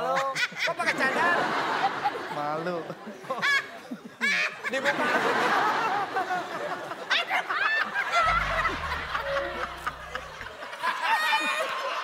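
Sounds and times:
people laughing: 0.2s - 10.5s
low steady hum: 8.2s - 10.5s.

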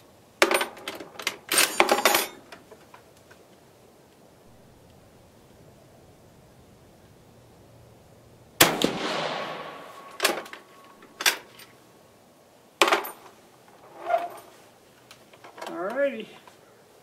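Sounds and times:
rifle shot with echo: 8.6s - 10.6s.

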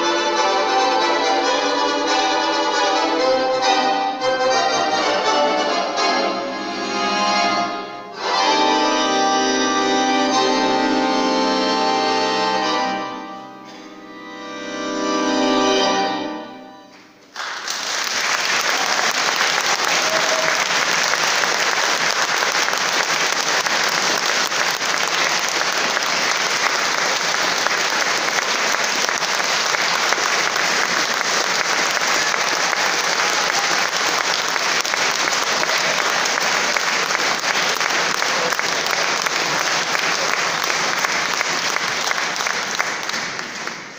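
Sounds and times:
audience applauding: 17.2s - 43.9s.

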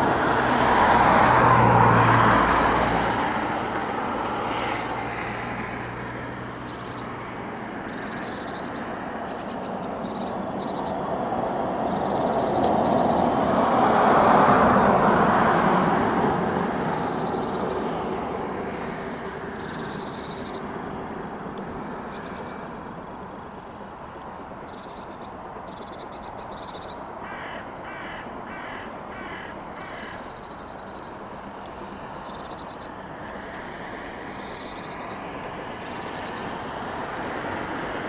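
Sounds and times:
crow cawing: 27.2s - 30.3s.

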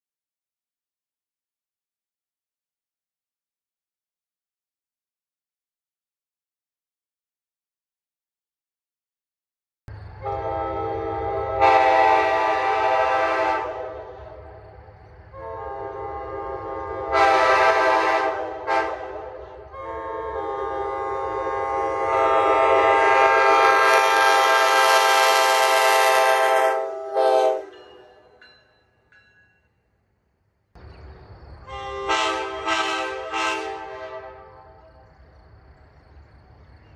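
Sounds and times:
locomotive air horn chord: 10.2s - 14.6s, 15.3s - 28.2s, 31.6s - 35.1s
crickets chirring: 30.8s - 32.0s, 34.3s - 36.9s.

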